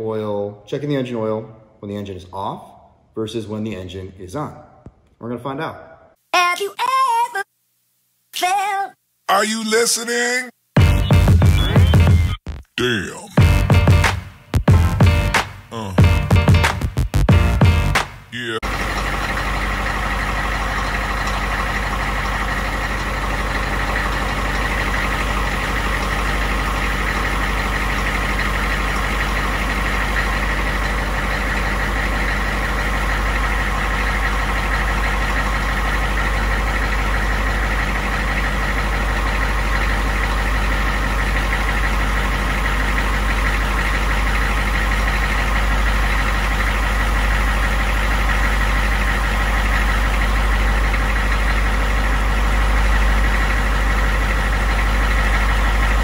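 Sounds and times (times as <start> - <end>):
diesel engine idling: 12.9 - 56.0.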